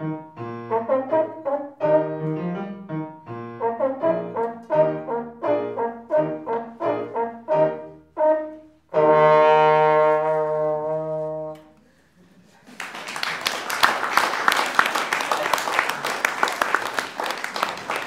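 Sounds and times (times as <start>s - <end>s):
piano accompaniment: 0.0s - 11.8s
trombone playing short notes: 0.5s - 2.7s, 3.4s - 11.8s
audience applause: 12.6s - 18.0s.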